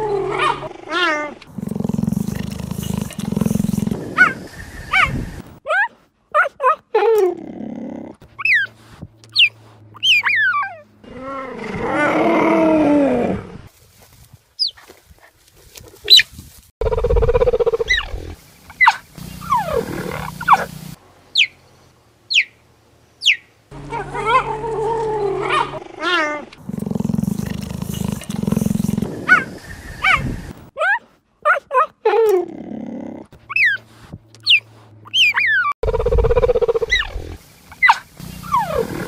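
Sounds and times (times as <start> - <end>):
cheetah chirps: 16.8 - 21.6, 22.3 - 22.6, 34.4 - 39.0
cheetah longer calls: 18.8 - 21.6, 34.5 - 39.0.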